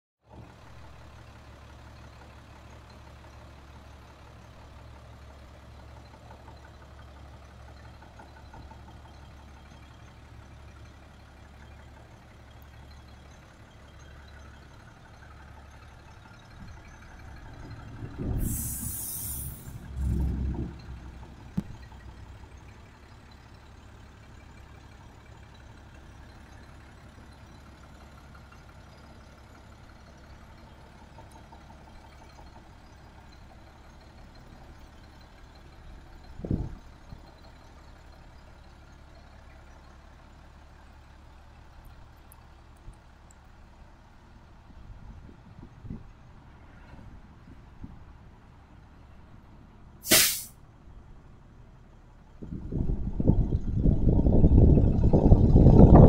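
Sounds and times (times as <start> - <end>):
diesel truck engine idling: 0.3 - 56.0
air brake hiss: 18.3 - 19.9, 50.0 - 50.6.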